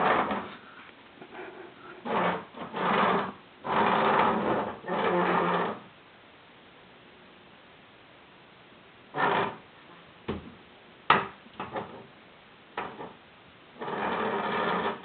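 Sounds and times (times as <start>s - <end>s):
stool legs scraping on tile: 0.0s - 5.8s, 9.1s - 9.6s, 13.8s - 15.0s.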